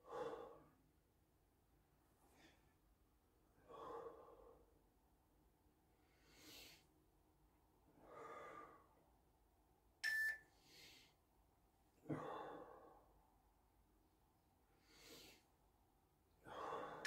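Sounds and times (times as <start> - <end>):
man breathing heavily: 0.0 - 0.8, 3.6 - 4.8, 6.0 - 6.9, 7.9 - 9.0, 10.6 - 11.2, 12.0 - 13.1, 14.7 - 15.6, 16.4 - 17.0.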